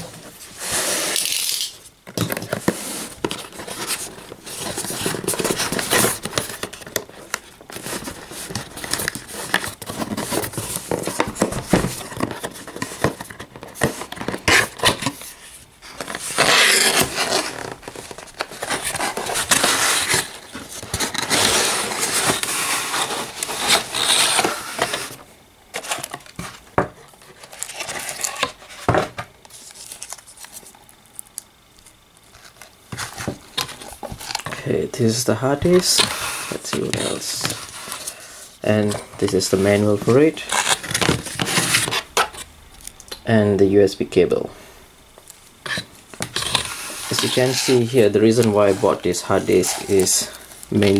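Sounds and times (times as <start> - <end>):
cardboard packaging scraping: 0.0 - 30.8, 32.3 - 42.5, 45.6 - 50.9.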